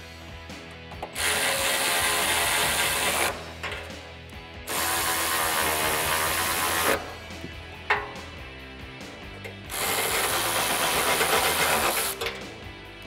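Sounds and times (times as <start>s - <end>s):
cordless ratchet spinning: 9.4s - 12.4s.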